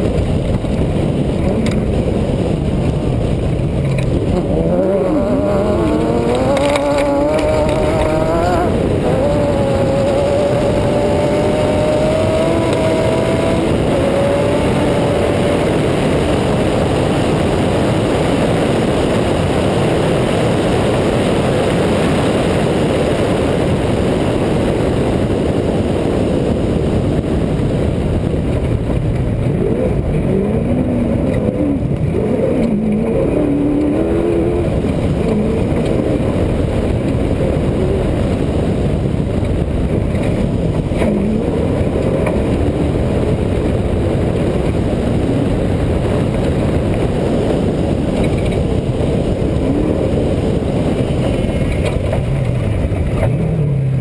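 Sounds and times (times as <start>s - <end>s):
dirt road noise: 0.0s - 54.0s
wind noise: 0.0s - 54.0s
truck engine revving hard: 1.4s - 23.8s.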